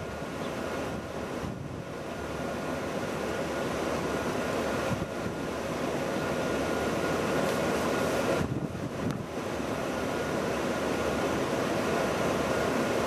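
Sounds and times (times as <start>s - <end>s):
wind on the microphone: 8.3s - 9.3s.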